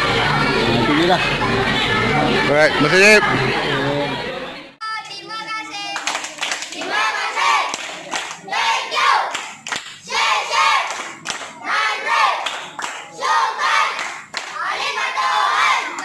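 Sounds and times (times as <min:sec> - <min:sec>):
crowd chanting a cheer: 0:00.0 - 0:04.8, 0:06.6 - 0:16.0
hand claps: 0:07.7 - 0:08.4, 0:09.3 - 0:10.0, 0:10.9 - 0:11.6, 0:12.4 - 0:13.1, 0:14.0 - 0:14.6.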